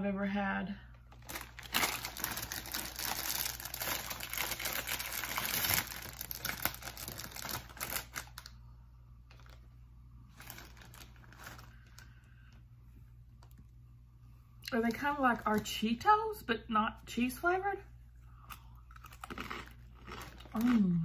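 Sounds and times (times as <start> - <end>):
snack bag crinkling: 1.1 - 8.6, 9.3 - 12.2, 18.8 - 21.0.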